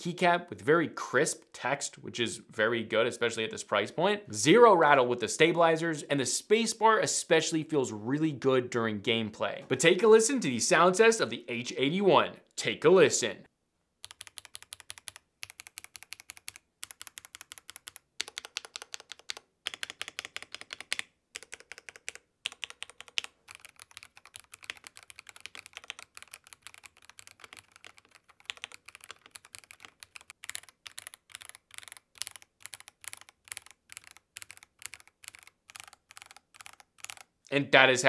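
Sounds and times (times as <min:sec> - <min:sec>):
mechanical keyboard typing: 0:14.0 - 0:37.3.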